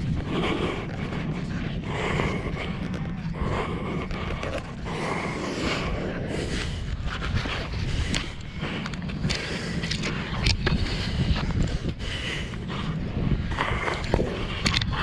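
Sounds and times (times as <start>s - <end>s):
steady low rumble: 0.0s - 15.0s.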